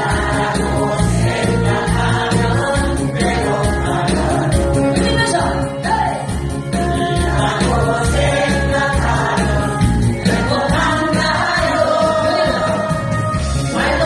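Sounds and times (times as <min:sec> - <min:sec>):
women choir singing: 0:00.0 - 0:04.7, 0:06.9 - 0:13.1, 0:13.7 - 0:14.0
backing music with steady beat: 0:00.0 - 0:14.0.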